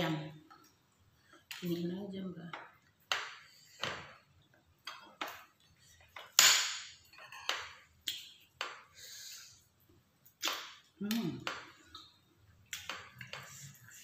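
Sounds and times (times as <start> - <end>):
cutlery clinking on plates: 7.0 - 7.8.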